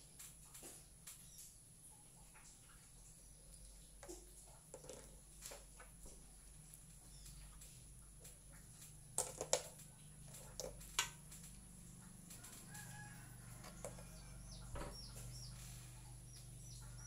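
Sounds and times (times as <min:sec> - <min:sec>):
bird chirping: 0:06.9 - 0:07.8, 0:13.7 - 0:17.0.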